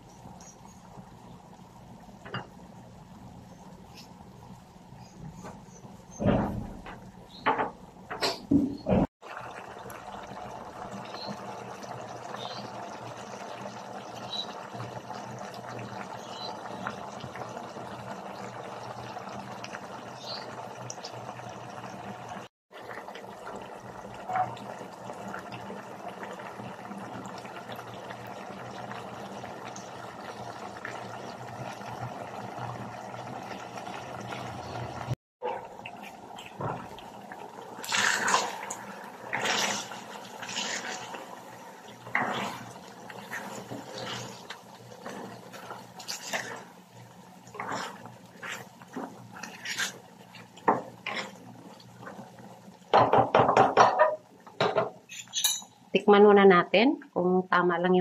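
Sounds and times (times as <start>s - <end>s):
sauce bubbling in a pan: 9.1s - 54.9s.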